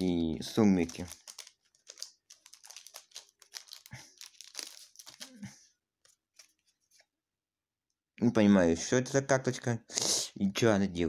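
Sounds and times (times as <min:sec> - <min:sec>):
packaging crinkling and rustling: 0:00.7 - 0:06.7.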